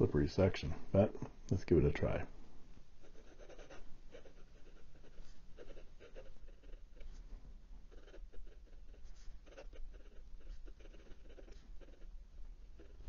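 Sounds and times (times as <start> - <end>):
fountain pen scratching on paper: 3.0 - 7.2, 7.9 - 12.1.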